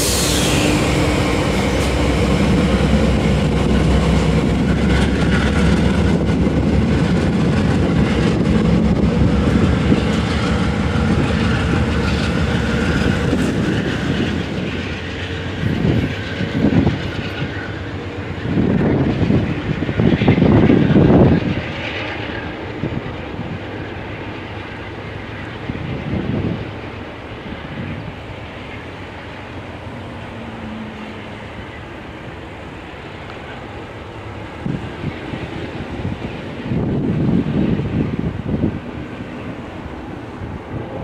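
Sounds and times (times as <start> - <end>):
train wheels clattering on track: 0.0 - 30.4
diesel locomotive engine drone: 0.0 - 41.0.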